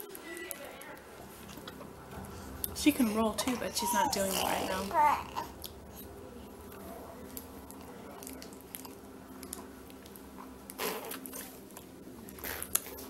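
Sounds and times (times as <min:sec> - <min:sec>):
baby sucking on fist: 0:10.8 - 0:11.5.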